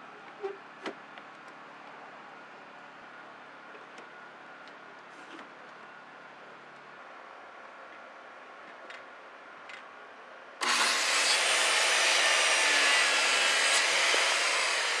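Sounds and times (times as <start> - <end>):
circular saw cutting wood: 10.6 - 15.0.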